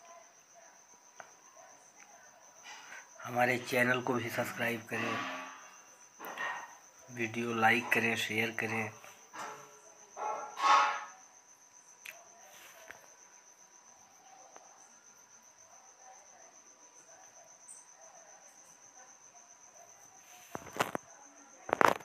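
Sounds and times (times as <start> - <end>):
insect trilling: 1.6 - 12.5.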